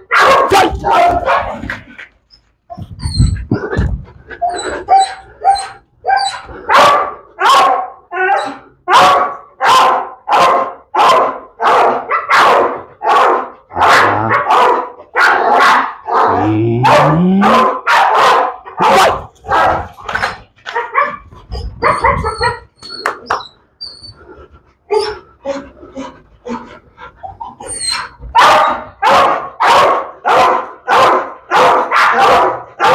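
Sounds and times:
dog barking: 0:00.0 - 0:01.7, 0:04.9 - 0:22.7, 0:28.3 - 0:32.9.

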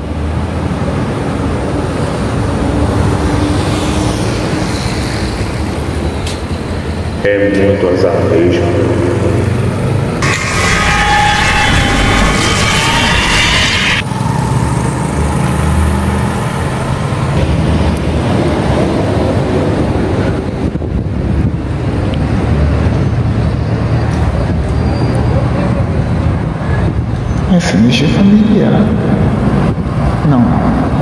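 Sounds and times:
city traffic rumble: 0:00.0 - 0:31.0
higher-pitched sound: 0:10.2 - 0:14.1.

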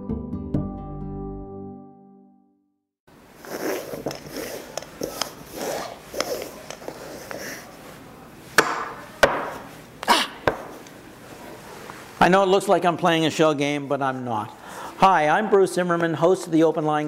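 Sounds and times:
plastic balls sliding on table: 0:03.4 - 0:07.8.

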